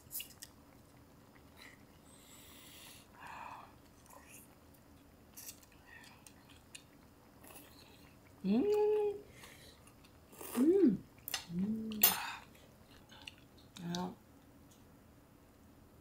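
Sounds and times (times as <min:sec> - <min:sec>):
person chewing: 0:00.0 - 0:02.8, 0:03.7 - 0:08.4, 0:09.3 - 0:13.9.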